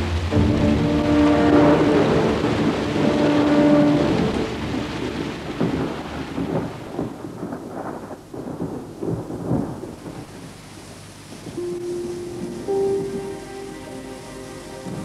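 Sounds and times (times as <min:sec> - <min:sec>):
held music chord: 0:00.0 - 0:06.3, 0:11.6 - 0:15.0
rolling thunder: 0:00.0 - 0:10.5
heavy rain: 0:00.0 - 0:15.0.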